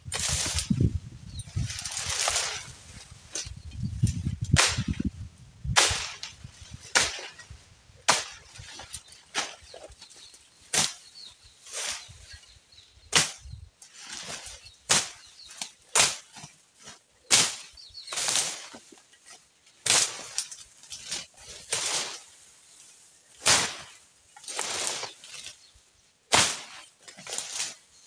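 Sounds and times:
blade slashing through brush: 0.1 - 0.8, 1.8 - 5.1, 5.8 - 9.8, 10.7 - 11.1, 14.1 - 16.5, 17.2 - 18.8, 19.8 - 22.3, 23.4 - 25.6, 26.3 - 27.8.

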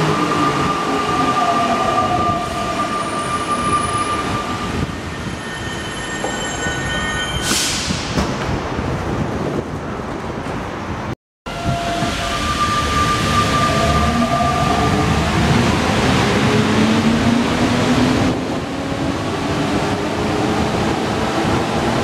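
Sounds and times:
metro train electric drive whine: 11.5 - 21.6.

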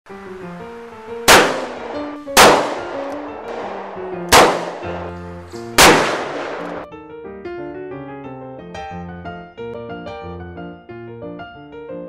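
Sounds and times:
music: 0.1 - 12.0
revolver shots with echo: 1.3 - 6.8.

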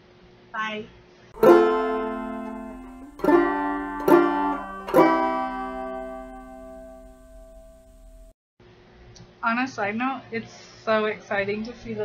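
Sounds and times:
plucked string chords: 1.4 - 8.3.

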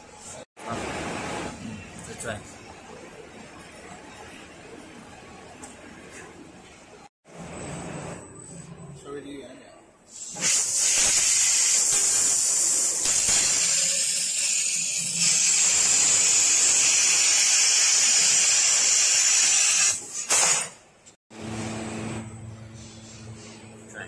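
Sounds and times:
laser cutter gas hiss: 10.1 - 20.6.

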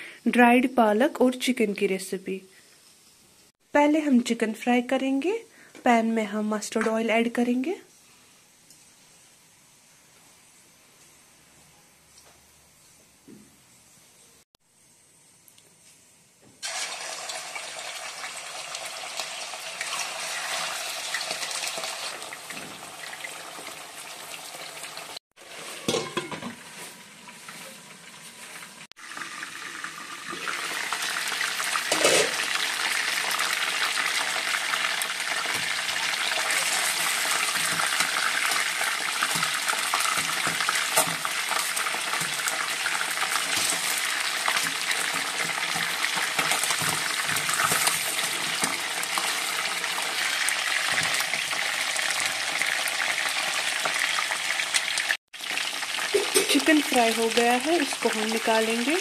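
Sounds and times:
chicken frying in hot oil: 16.6 - 59.0
lid and utensils knocking on pan: 25.8 - 26.6.

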